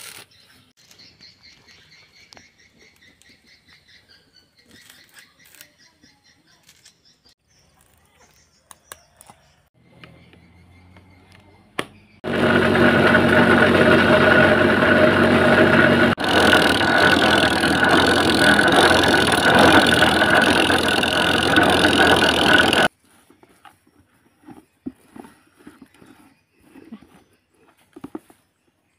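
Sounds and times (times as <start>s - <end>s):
electric coconut grater whining: 12.2s - 22.9s.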